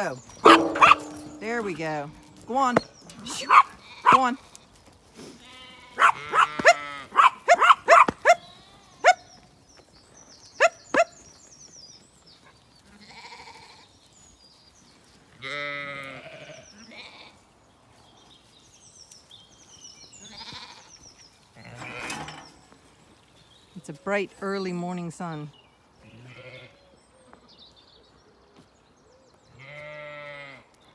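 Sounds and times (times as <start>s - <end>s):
sheep and lambs bleating: 0.0s - 7.4s, 8.2s - 9.2s, 12.8s - 14.0s, 15.3s - 17.5s, 20.2s - 22.4s, 26.0s - 26.9s, 29.5s - 30.9s.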